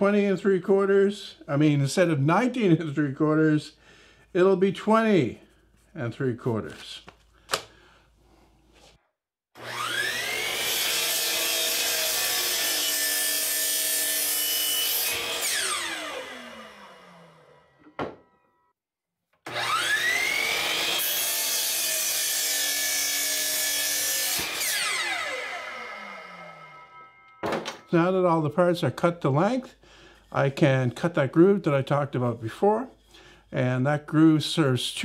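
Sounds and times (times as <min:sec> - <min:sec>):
miter saw cutting wood: 0:09.6 - 0:17.6, 0:19.5 - 0:27.3.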